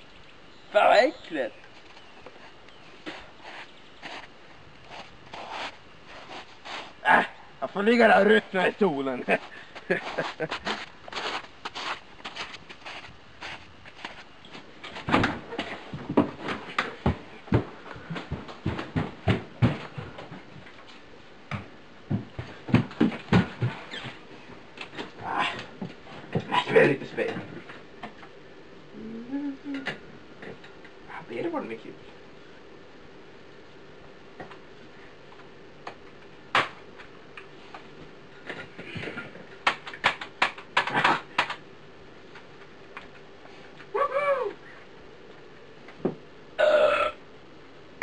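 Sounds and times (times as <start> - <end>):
faint steady hum: 0.0 - 48.0
dull thumps and knocks: 14.9 - 20.6, 21.5 - 24.2.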